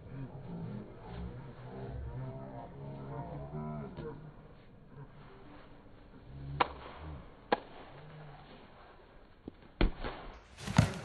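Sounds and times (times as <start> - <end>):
volleyball smacks: 9.8 - 11.0.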